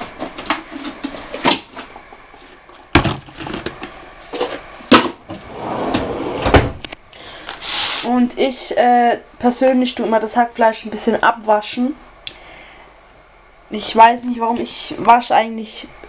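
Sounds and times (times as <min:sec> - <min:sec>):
brief hiss: 0:07.6 - 0:08.1.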